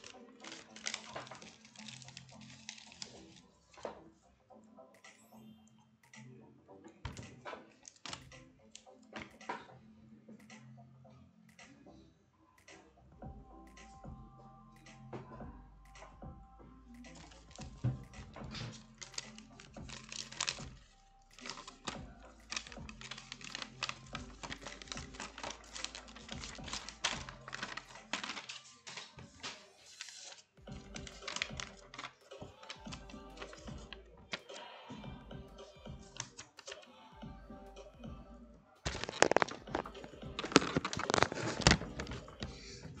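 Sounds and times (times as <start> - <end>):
hands handling paper and objects: 0.0 - 4.1, 7.1 - 9.6, 17.0 - 34.7, 35.6 - 36.8, 38.9 - 42.6
faint background music: 0.0 - 43.0.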